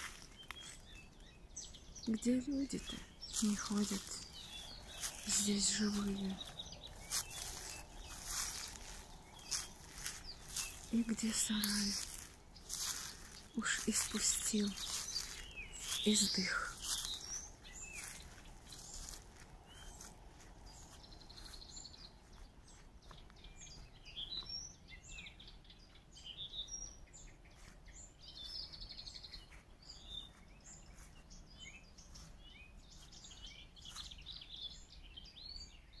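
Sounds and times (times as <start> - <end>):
songbirds singing and calling: 0.0 - 36.0.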